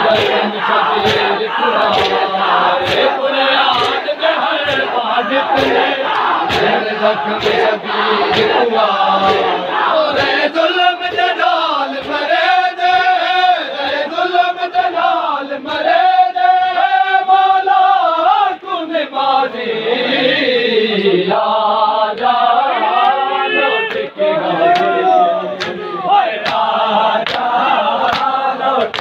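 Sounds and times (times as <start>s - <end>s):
men chanting in chorus: 0.0s - 29.0s
hands slapping bare chests: 0.1s - 0.4s, 1.0s - 5.0s, 5.6s - 8.6s, 25.6s - 25.8s, 26.4s - 29.0s.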